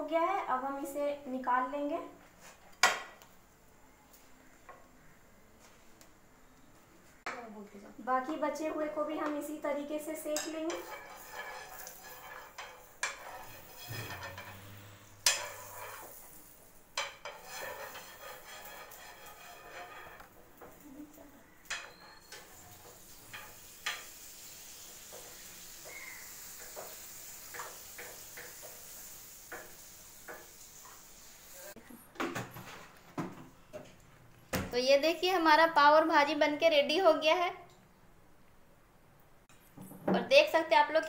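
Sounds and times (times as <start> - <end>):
faint sizzle in frying pan: 8.3 - 31.8
spatula scraping and knocking pan: 10.3 - 20.8, 21.6 - 24.2, 25.0 - 31.0.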